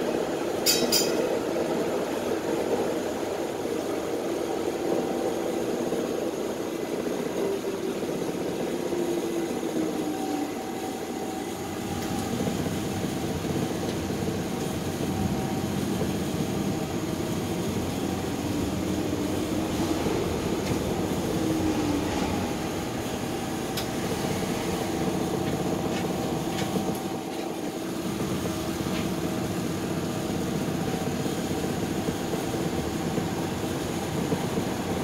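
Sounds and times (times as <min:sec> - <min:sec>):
streetcar rumble: 0:00.0 - 0:35.0.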